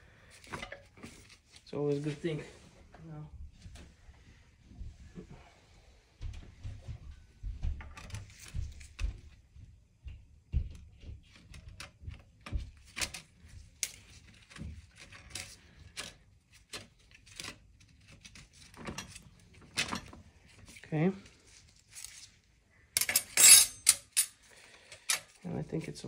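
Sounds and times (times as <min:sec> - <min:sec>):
metal clutch plates clinking: 0:23.0 - 0:24.4.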